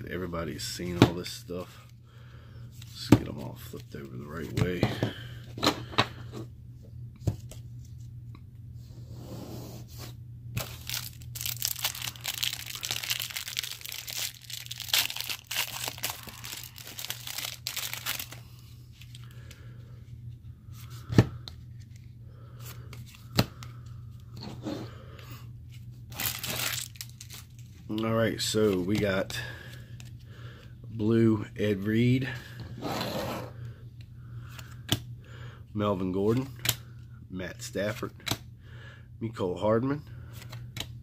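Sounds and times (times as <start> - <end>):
steady low hum: 0.0 - 41.0
plastic wrapper crinkling and tearing: 10.6 - 18.4, 26.1 - 28.0.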